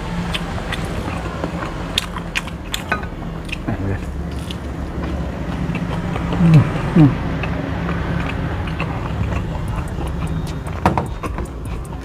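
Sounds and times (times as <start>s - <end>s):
chewing clicks and smacks: 0.0s - 12.0s
steady low hum: 0.0s - 12.0s
man humming mmm: 6.3s - 7.2s.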